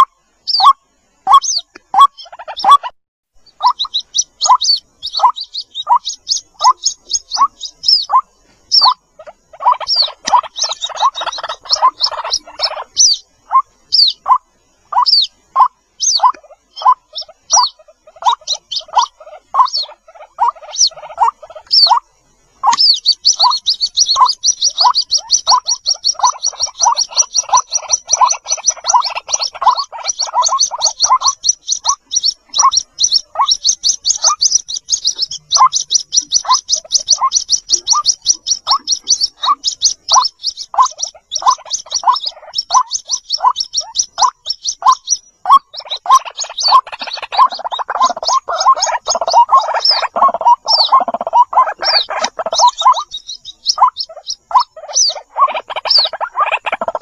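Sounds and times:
chicks chirping: 0.0 - 57.0
rapid high-pitched peeps: 0.0 - 57.0.

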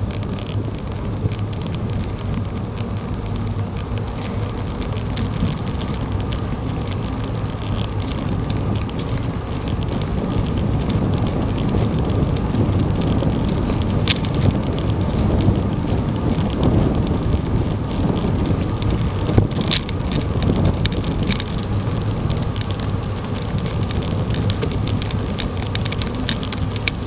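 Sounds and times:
bicycle tyres rolling on asphalt: 0.0 - 27.0
small clicks and rattles: 0.0 - 27.0
wind buffeting microphone: 0.0 - 27.0.

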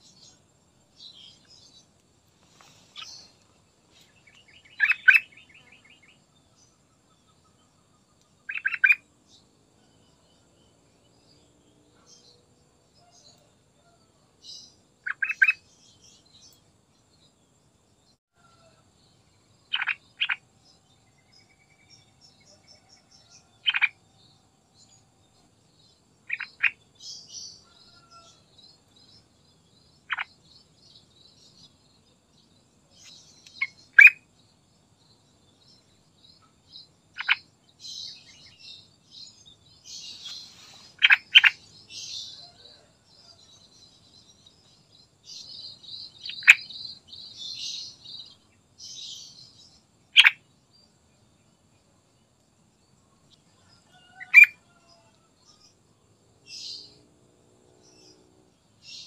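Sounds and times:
faint high chirping: 0.0 - 11.3, 18.0 - 50.9, 52.8 - 55.8.

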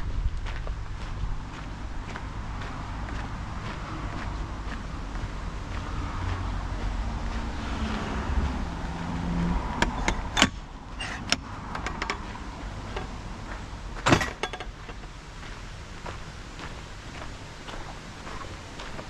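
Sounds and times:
car engine rumble: 0.0 - 19.0
sharp clicks and knocks: 9.7 - 13.2, 14.0 - 15.1.

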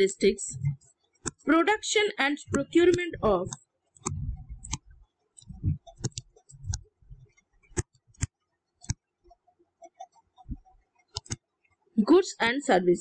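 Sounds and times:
stylus tapping on writing tablet: 2.5 - 4.9.

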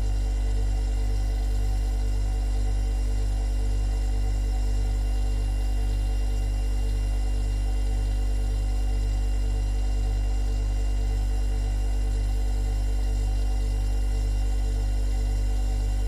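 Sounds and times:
refrigerator humming: 0.0 - 16.0.

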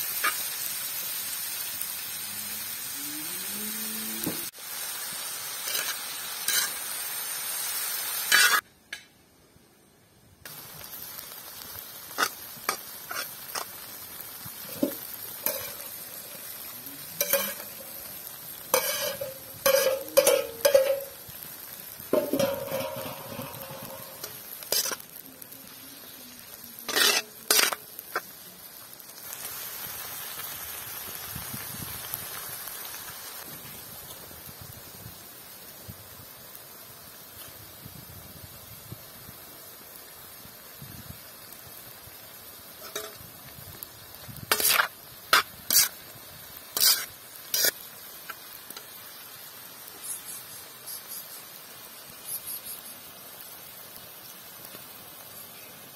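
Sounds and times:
vegetables sizzling on a griddle: 0.0 - 9.7, 10.3 - 55.9
metal skimmer scraping a pan: 5.6 - 6.8, 14.6 - 16.6, 17.2 - 18.0, 18.7 - 21.2, 22.1 - 25.1, 26.8 - 27.9, 42.8 - 43.2, 44.5 - 46.0, 46.8 - 47.8
metal lid rattling: 22.2 - 24.2.

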